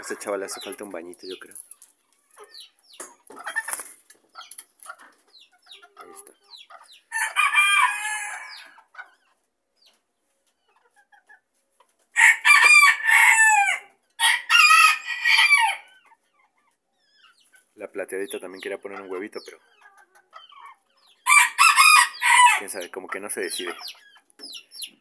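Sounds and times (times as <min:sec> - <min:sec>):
hen clucking: 0:00.0 - 0:25.0
rooster crowing: 0:07.1 - 0:08.7, 0:12.2 - 0:15.9, 0:21.3 - 0:22.6.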